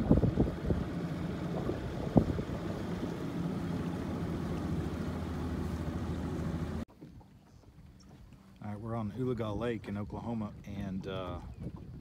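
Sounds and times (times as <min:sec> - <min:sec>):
boat motor running: 0:00.0 - 0:09.1
wind buffeting microphone: 0:00.0 - 0:12.0.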